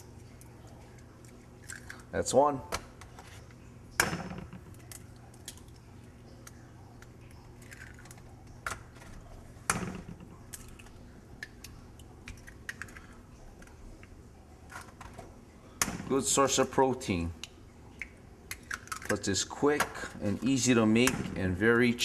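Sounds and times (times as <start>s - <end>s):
eggs cracking: 0.0s - 2.2s, 3.9s - 21.4s.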